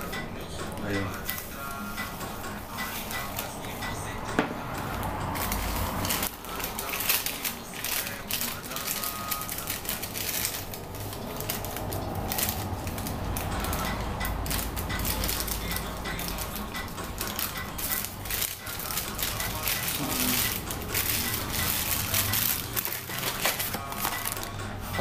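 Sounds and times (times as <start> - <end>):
plastic packaging crinkling: 5.3 - 25.0.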